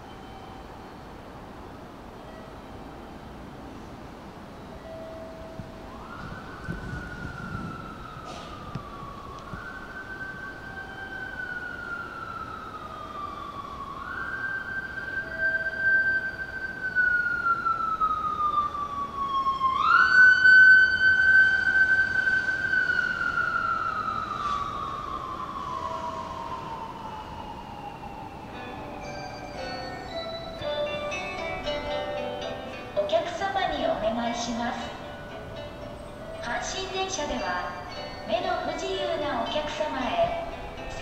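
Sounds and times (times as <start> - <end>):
emergency siren wailing: 4.6 - 41.0.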